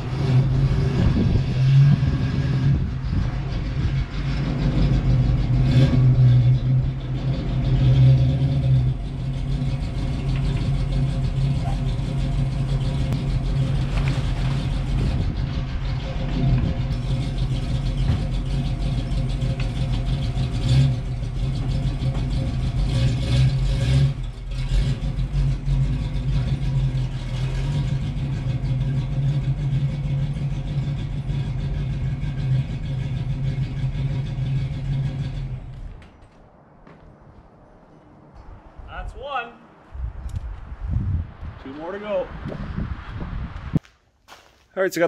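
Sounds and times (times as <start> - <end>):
car engine running: 0.0 - 36.0.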